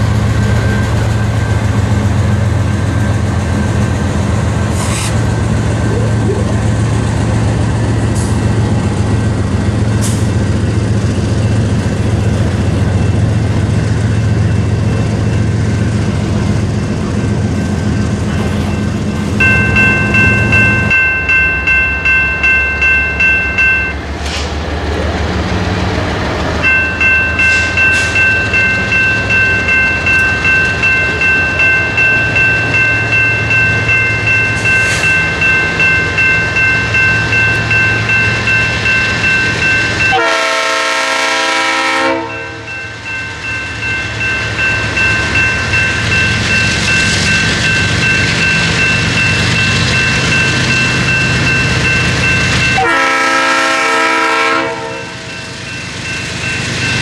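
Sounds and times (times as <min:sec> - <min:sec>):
freight train engine rumble: 0:00.0 - 0:57.0
locomotive air horn: 0:40.1 - 0:42.7, 0:52.8 - 0:55.2.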